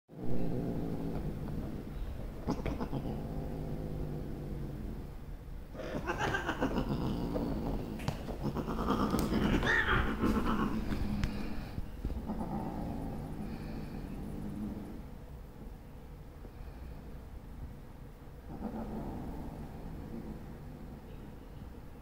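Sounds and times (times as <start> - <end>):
cat yowling: 5.8 - 7.0, 8.5 - 10.8.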